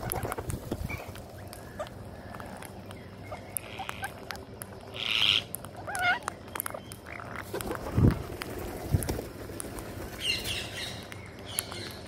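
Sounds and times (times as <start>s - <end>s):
beaks clicking on concrete: 0.0s - 12.0s
parakeet squawk: 5.0s - 6.3s
parakeet wavering call: 5.0s - 6.3s.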